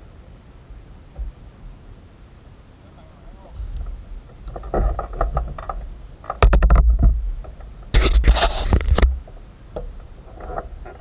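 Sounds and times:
wind buffeting camera microphone: 3.0 - 11.0.

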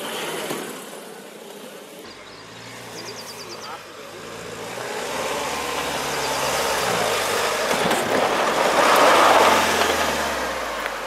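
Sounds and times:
diesel engine pulling uphill: 2.1 - 11.0
tyres churning through dirt: 2.1 - 11.0.

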